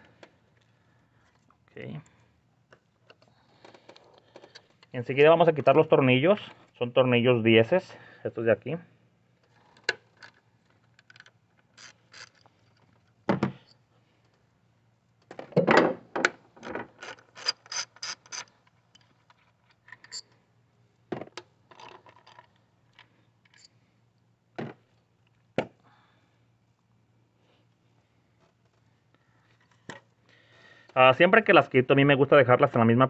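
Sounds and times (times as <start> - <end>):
hand ratchet clicking: 11.1 - 12.5, 17.0 - 18.6.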